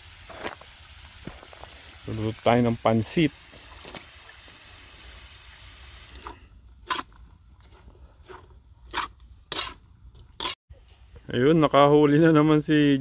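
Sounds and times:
metal utensil scraping a wok: 8.2 - 9.8, 10.4 - 10.6.

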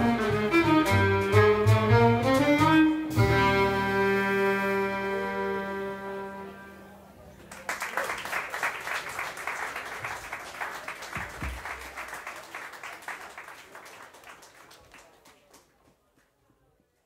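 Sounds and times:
audience applauding: 7.4 - 16.0.

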